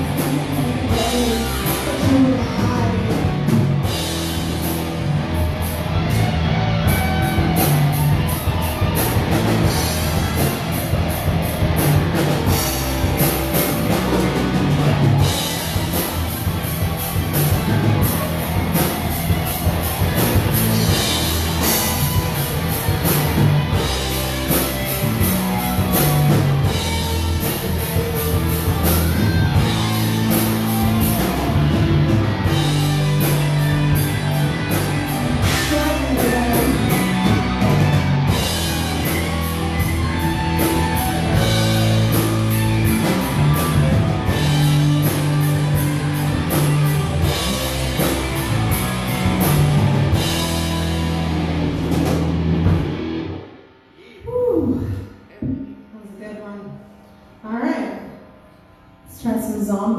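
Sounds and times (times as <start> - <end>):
woman singing: 0.0 - 3.6, 35.4 - 37.1
live rock band playing: 0.0 - 53.8.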